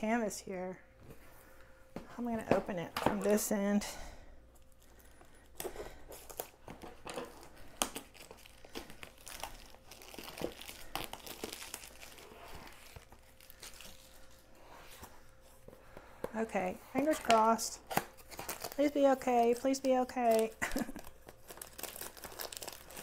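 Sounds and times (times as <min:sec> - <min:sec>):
packaging crinkling and tearing: 0:04.6 - 0:14.5, 0:17.0 - 0:23.0.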